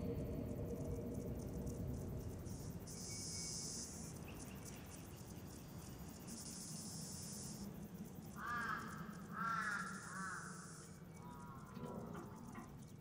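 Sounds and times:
insects chirring: 0:00.0 - 0:13.0
crow cawing: 0:08.4 - 0:11.8.

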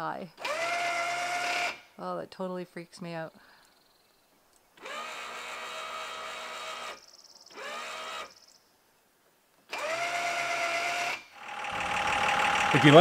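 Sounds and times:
electric motor whining: 0:00.4 - 0:01.8, 0:04.8 - 0:08.4, 0:09.7 - 0:13.0.

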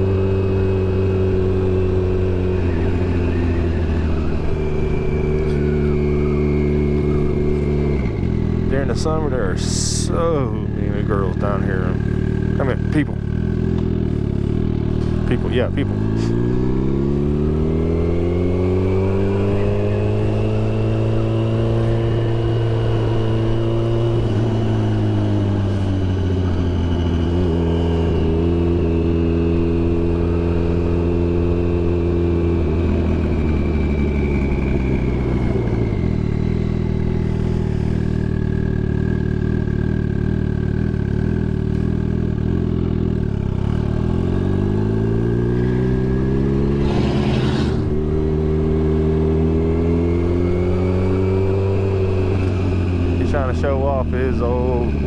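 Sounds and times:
high whine: 0:00.0 - 0:16.9, 0:44.4 - 0:55.0
motorcycle engine revving: 0:00.0 - 0:55.0.

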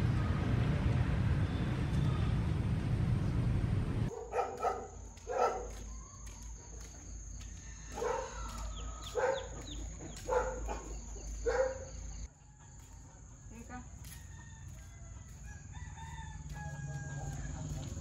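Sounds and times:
small dog barking: 0:04.1 - 0:05.8, 0:08.0 - 0:11.9.

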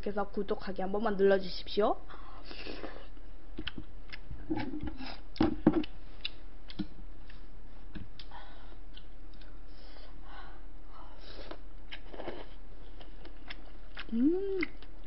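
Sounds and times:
steady low hum: 0:00.0 - 0:15.0
soft chewing: 0:02.5 - 0:10.2, 0:11.3 - 0:15.0.

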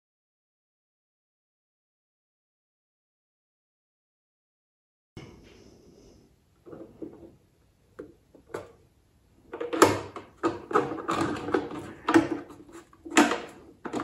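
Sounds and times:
plastic parts knocking and scraping: 0:06.6 - 0:14.0.

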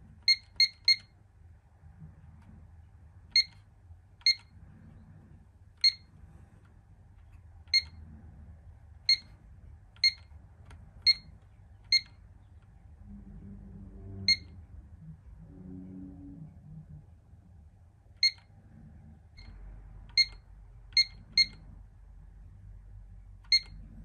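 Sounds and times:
alarm keypad beeping: 0:00.2 - 0:01.1, 0:04.2 - 0:04.5, 0:05.8 - 0:06.1, 0:09.1 - 0:09.3, 0:10.0 - 0:10.3, 0:11.0 - 0:11.3, 0:11.9 - 0:12.2, 0:14.2 - 0:14.5, 0:18.2 - 0:18.5, 0:19.4 - 0:21.6, 0:23.5 - 0:23.8.

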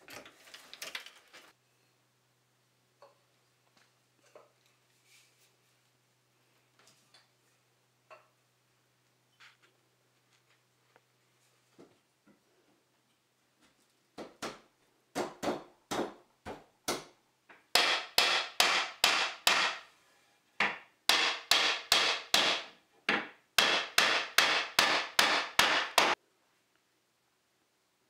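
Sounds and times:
hammer knocking on wood: 0:17.8 - 0:19.8, 0:20.6 - 0:26.2.

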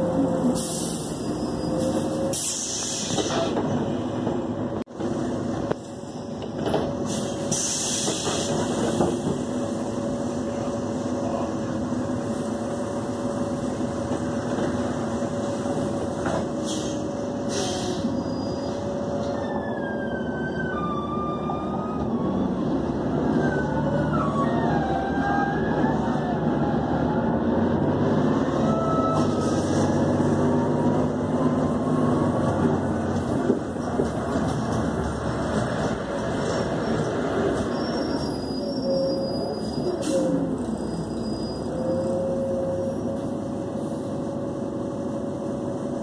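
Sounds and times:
bus engine running with whine: 0:00.0 - 0:46.0
air hissing: 0:07.1 - 0:09.2
siren: 0:19.3 - 0:27.5.

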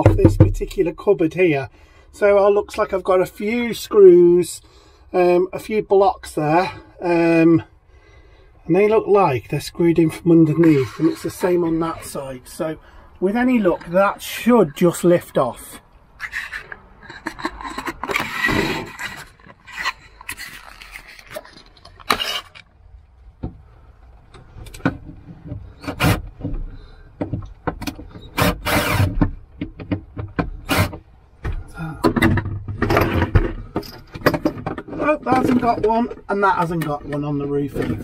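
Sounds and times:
rustling handling noise: 0:18.0 - 0:25.8.

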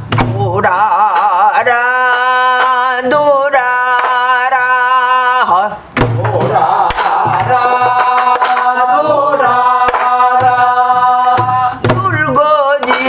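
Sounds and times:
barrel drum thumps and knocks: 0:00.0 - 0:00.4, 0:06.0 - 0:08.6
person singing folk song: 0:00.0 - 0:13.0.

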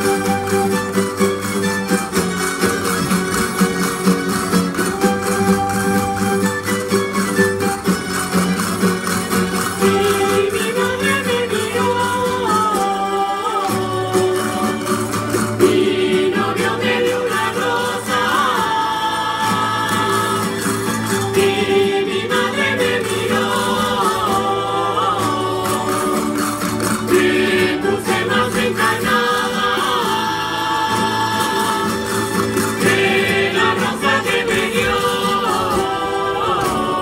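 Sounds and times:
percussion clatter: 0:00.0 - 0:37.0
plucked-string folk band: 0:00.0 - 0:37.0
voices singing: 0:09.3 - 0:37.0.

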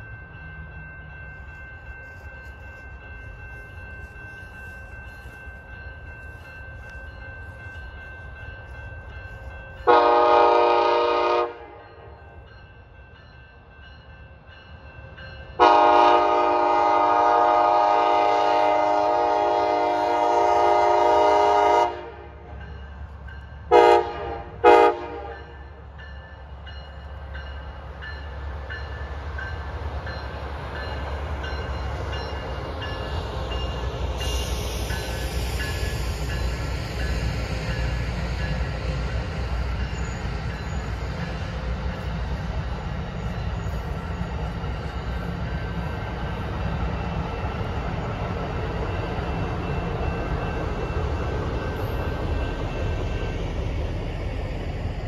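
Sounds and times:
train rumbling past: 0:00.0 - 0:55.0
train air horn blasts: 0:09.8 - 0:11.8, 0:15.6 - 0:22.5, 0:23.7 - 0:25.5.

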